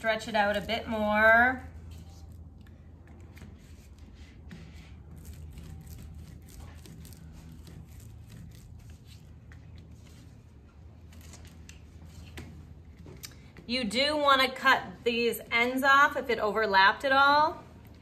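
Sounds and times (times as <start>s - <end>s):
palms rolling clay coil: 0.0s - 13.6s.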